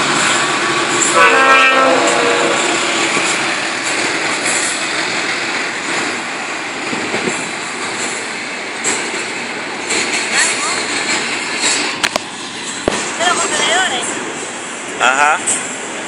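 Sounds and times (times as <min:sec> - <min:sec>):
freight train rolling on rails: 0:00.0 - 0:16.0.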